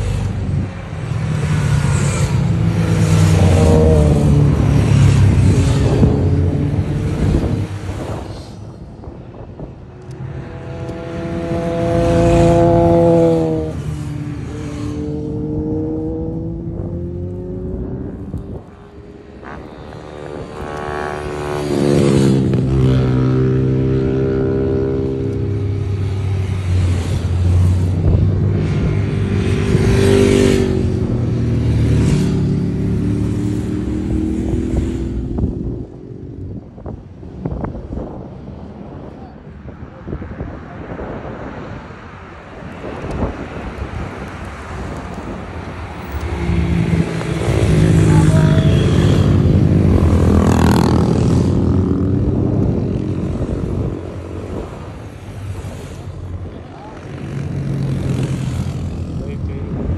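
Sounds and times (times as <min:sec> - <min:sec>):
motorcycles passing at speed: 0:00.0 - 0:59.9.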